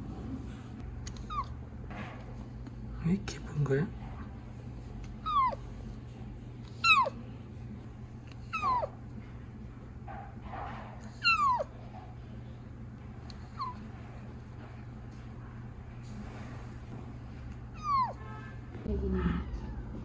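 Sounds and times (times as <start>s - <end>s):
kitten mewing: 5.1s - 5.6s, 6.7s - 7.2s, 8.3s - 9.0s, 11.1s - 11.8s, 17.7s - 18.4s.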